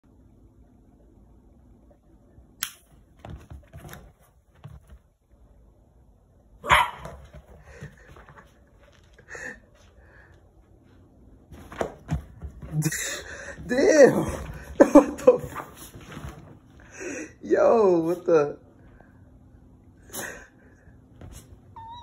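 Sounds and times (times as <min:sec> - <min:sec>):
lighter click: 0:02.6 - 0:02.8
dog barking and yelping: 0:06.6 - 0:07.2.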